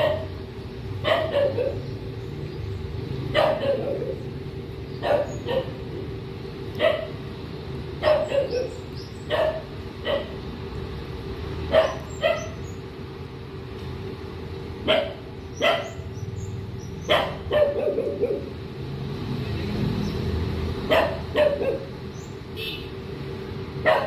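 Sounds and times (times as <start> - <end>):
dog barking: 0.0 - 0.3, 1.0 - 1.9, 3.3 - 4.2, 5.0 - 5.8, 6.8 - 7.2, 8.0 - 10.4, 11.7 - 12.6, 14.8 - 16.0, 17.0 - 18.5, 20.9 - 21.9.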